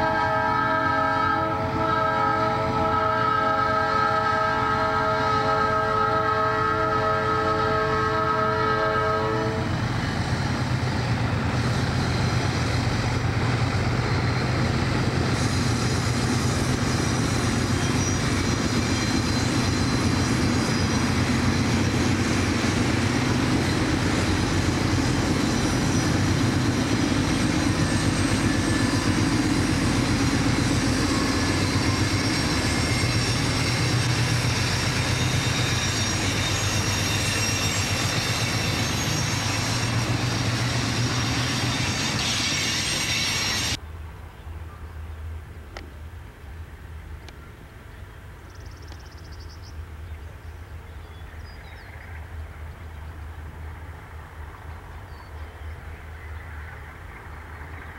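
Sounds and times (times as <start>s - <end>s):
diesel locomotive engines droning: 0.0s - 57.9s
train wheels rolling on rails: 9.3s - 43.8s.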